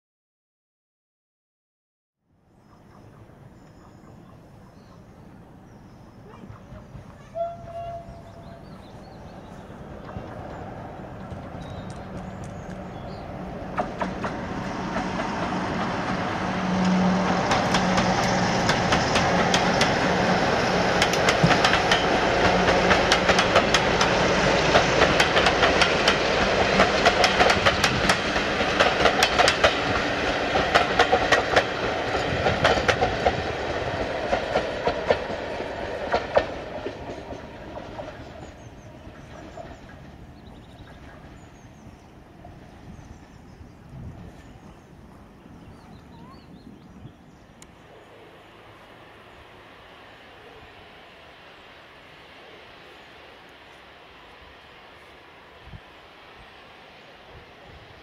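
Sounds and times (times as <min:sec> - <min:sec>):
diesel locomotive engine drone: 0:02.3 - 0:58.0
train wheels clicking over rail joints: 0:09.6 - 0:42.0.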